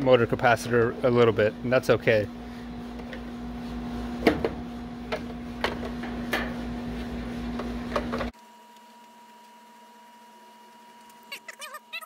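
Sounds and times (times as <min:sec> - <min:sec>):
steady hum: 0:00.0 - 0:08.4.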